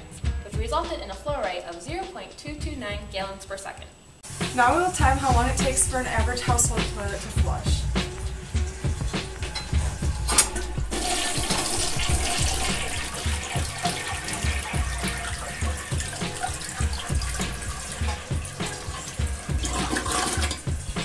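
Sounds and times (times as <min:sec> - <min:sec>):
toilet water rushing and draining: 0:10.3 - 0:21.0.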